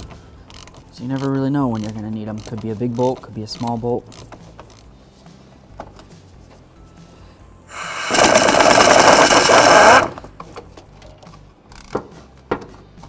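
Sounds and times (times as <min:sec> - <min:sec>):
pneumatic impact wrench hammering: 0:07.7 - 0:10.3.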